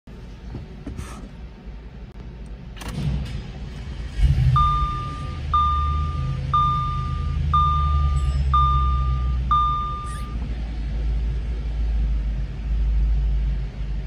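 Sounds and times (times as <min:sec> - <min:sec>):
car engine idling: 0:01.4 - 0:14.0
dashboard warning chime: 0:04.5 - 0:10.4.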